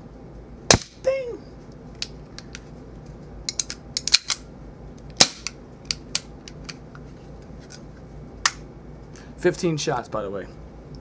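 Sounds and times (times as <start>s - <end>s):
sharp pistol snaps: 0.7s - 1.0s, 5.2s - 6.6s
pistol mechanism clicks: 3.5s - 4.4s.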